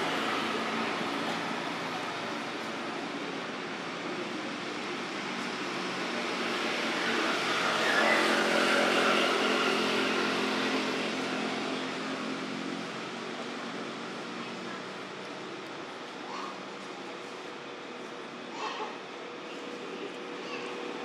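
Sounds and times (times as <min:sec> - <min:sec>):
vehicle passing by: 0:04.6 - 0:14.9.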